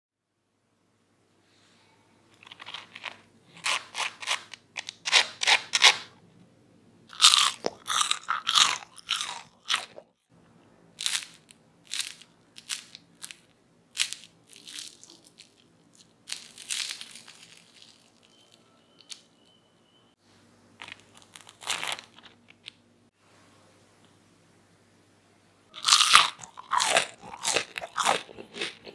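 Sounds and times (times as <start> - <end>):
crispy fries crunching: 2.4 - 6.1, 7.1 - 10.1, 11.0 - 19.3, 20.8 - 22.8, 25.8 - 28.9.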